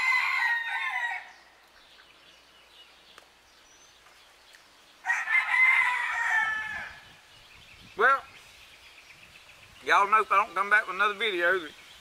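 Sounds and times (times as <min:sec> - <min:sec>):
rooster crowing: 0:00.0 - 0:01.4, 0:05.0 - 0:07.0.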